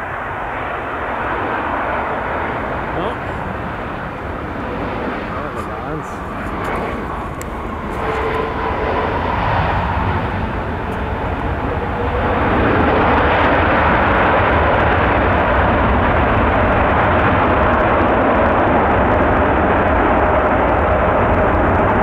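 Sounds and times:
jet engines roaring: 0:00.0 - 0:22.0.

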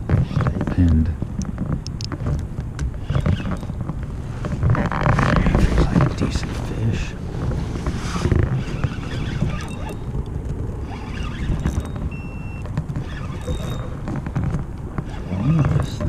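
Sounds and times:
water moving along hull: 0:00.0 - 0:16.0
wind on microphone: 0:00.0 - 0:16.0.

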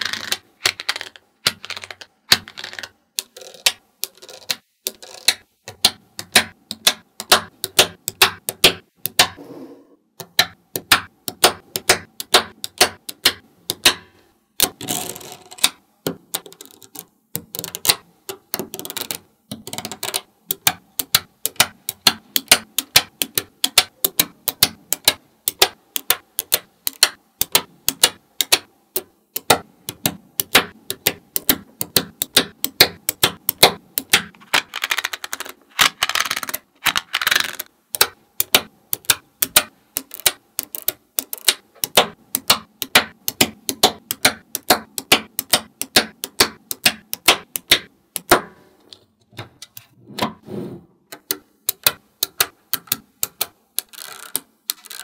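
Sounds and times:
scraper rattling across balls: 0:00.0 - 0:05.4, 0:34.3 - 0:37.7, 0:53.8 - 0:55.0
magnet balls clicking: 0:00.0 - 0:09.4, 0:10.2 - 0:48.4, 0:51.1 - 0:55.0.

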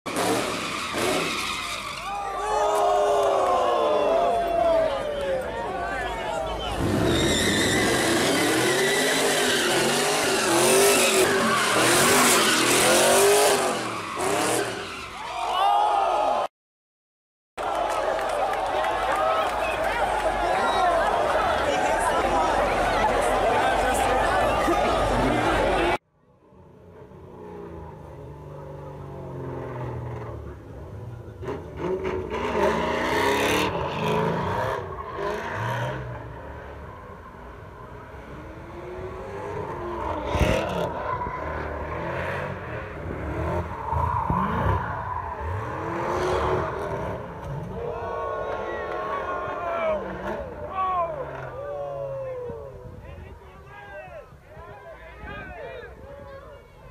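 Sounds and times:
tyres screeching: 0:06.6 - 0:15.3
car engine revving: 0:27.4 - 0:47.8.

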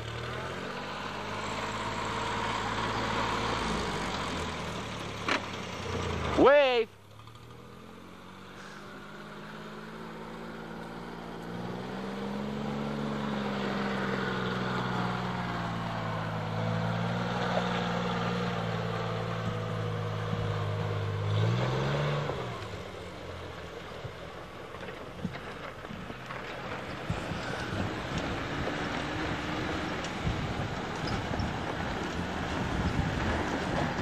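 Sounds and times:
engine labouring uphill: 0:00.0 - 0:34.0.

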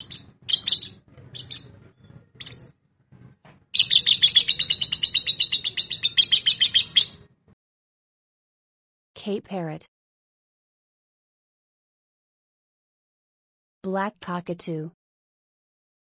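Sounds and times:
lovebirds chirping: 0:00.0 - 0:07.4.

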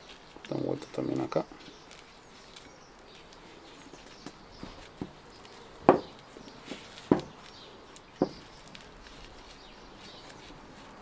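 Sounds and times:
sharp knocks: 0:05.8 - 0:06.2, 0:07.1 - 0:07.4.

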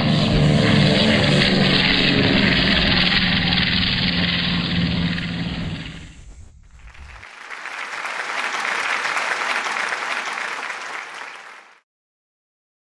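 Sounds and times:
low rumble: 0:00.0 - 0:07.2
crowd applause: 0:06.6 - 0:11.8.

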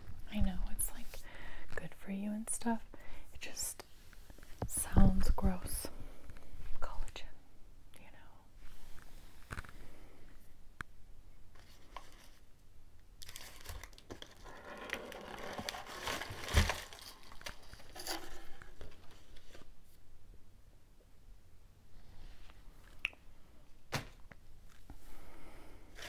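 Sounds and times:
packaging crinkling and tearing: 0:13.2 - 0:19.2.

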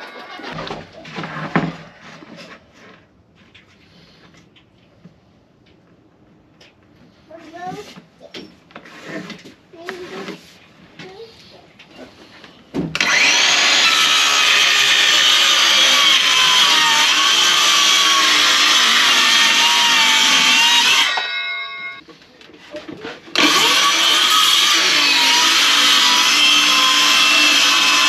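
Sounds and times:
circular saw cutting plywood: 0:13.0 - 0:21.3, 0:23.3 - 0:28.0.

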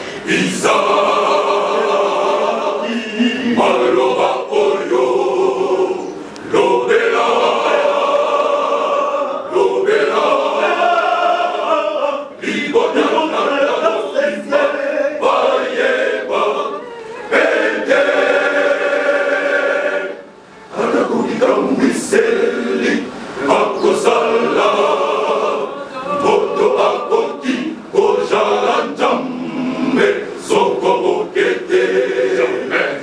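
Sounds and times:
men's choir singing unaccompanied: 0:00.0 - 0:33.0.

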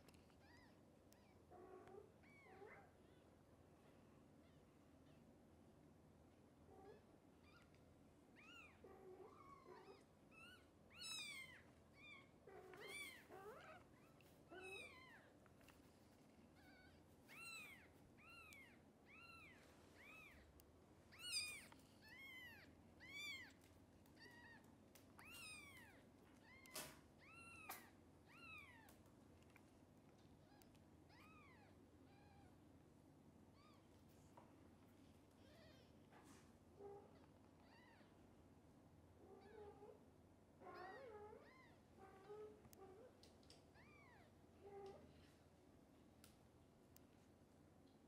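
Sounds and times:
newborn kittens mewing: 0:08.4 - 0:15.4, 0:16.5 - 0:29.0.

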